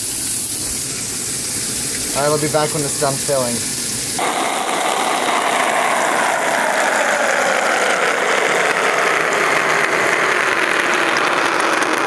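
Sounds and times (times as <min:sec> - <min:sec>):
water rushing into washing machine: 0:00.0 - 0:08.0.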